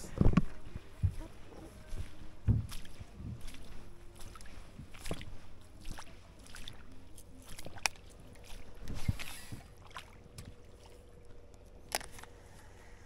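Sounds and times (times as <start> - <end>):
faint wind: 0.0 - 13.0
water lapping: 0.0 - 13.0.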